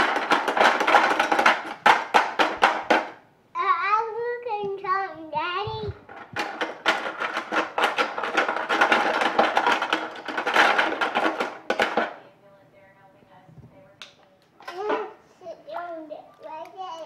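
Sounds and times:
small objects rattling in a pot: 0.0 - 3.2, 6.0 - 12.3
toddler sing-song voice: 3.6 - 6.0, 14.6 - 17.0.

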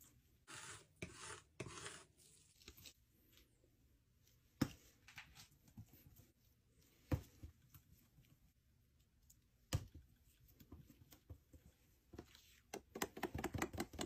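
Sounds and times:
palette knife scraping paint: 0.4 - 3.0.

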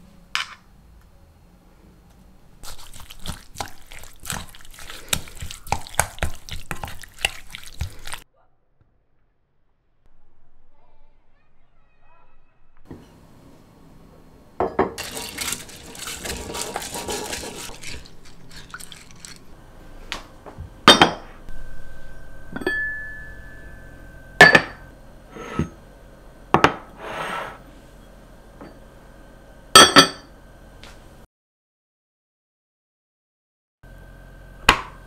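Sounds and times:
pot lids clinking and knocking: 14.7 - 17.8
cookware scraping and rustling: 14.8 - 19.5.

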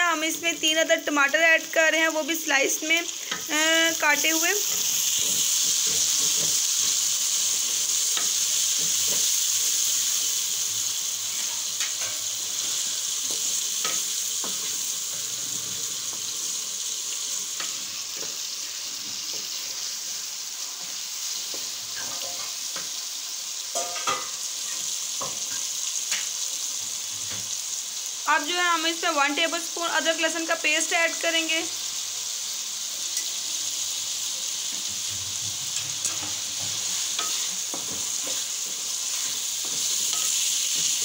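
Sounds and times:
vegetables sizzling in hot oil: 0.0 - 41.0
spatula scraping and knocking pan: 4.6 - 9.6, 11.3 - 16.3, 20.8 - 23.0, 23.8 - 26.3, 34.7 - 41.0.

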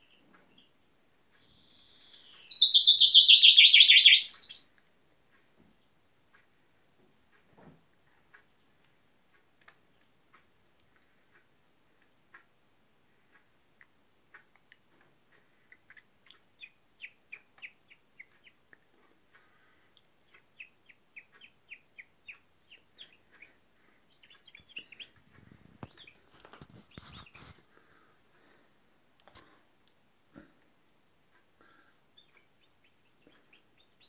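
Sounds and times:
chaffinch chirping: 0.0 - 4.8, 15.5 - 28.6, 31.6 - 34.0
rustling: 24.7 - 28.6.

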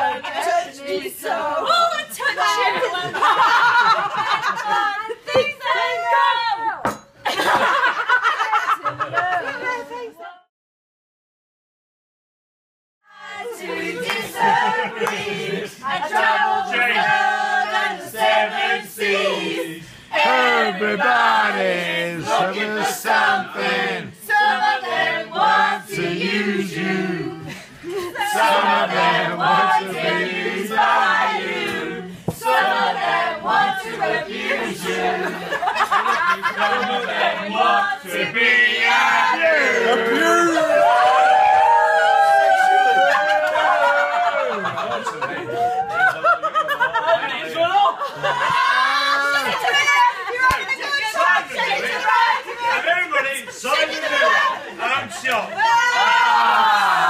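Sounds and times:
group of people singing: 0.0 - 7.7, 13.1 - 41.0, 49.4 - 57.0.

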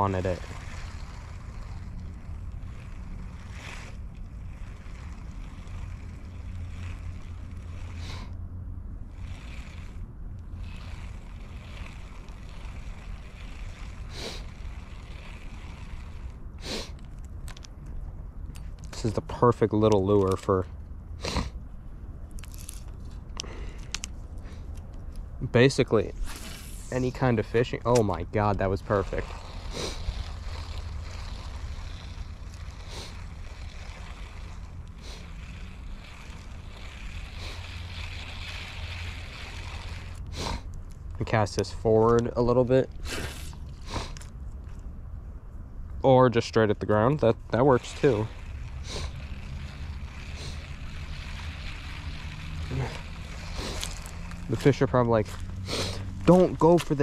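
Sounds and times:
faint hissy swishes: 25.7 - 40.7.

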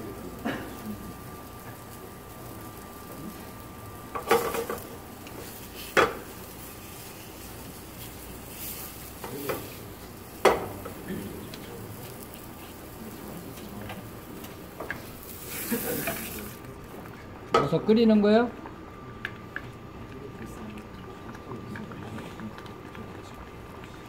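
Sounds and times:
meat sizzling in a frying pan: 0.0 - 16.9
pan clanking against stove: 4.1 - 4.9, 5.9 - 6.3, 10.4 - 11.0.

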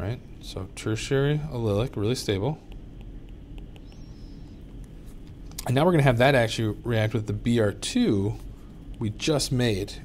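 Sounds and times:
low room hum: 0.0 - 10.0
stylus tapping on drawing tablet: 2.7 - 4.1.

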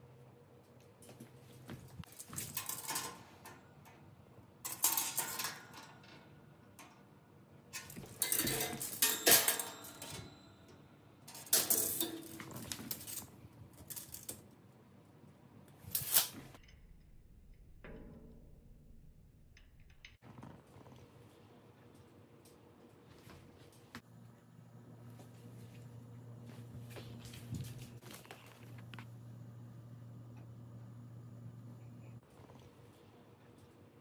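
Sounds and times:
metal clattering and scraping: 2.0 - 3.5, 4.7 - 6.4, 7.8 - 10.4, 11.3 - 14.4.

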